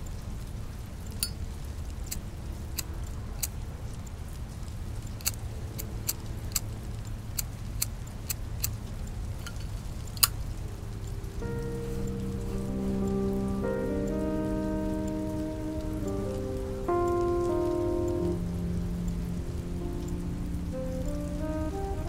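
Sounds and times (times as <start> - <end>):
steady low rumble: 1.2 - 22.0.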